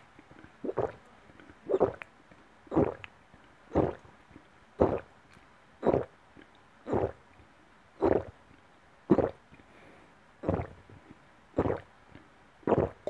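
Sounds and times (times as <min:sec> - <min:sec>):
person gulping a drink: 0:00.3 - 0:02.1, 0:02.7 - 0:03.1, 0:03.7 - 0:04.1, 0:04.8 - 0:05.1, 0:05.8 - 0:06.1, 0:06.9 - 0:07.2, 0:08.0 - 0:08.3, 0:09.1 - 0:09.4, 0:10.4 - 0:10.8, 0:11.6 - 0:11.9, 0:12.7 - 0:13.0.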